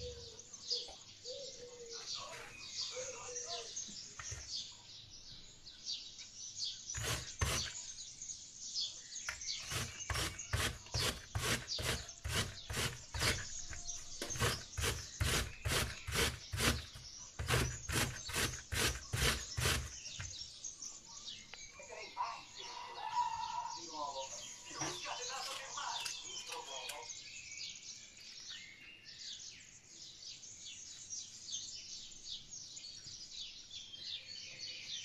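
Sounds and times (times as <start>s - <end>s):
apple grating on metal grater: 7.0s - 7.9s, 9.3s - 20.4s.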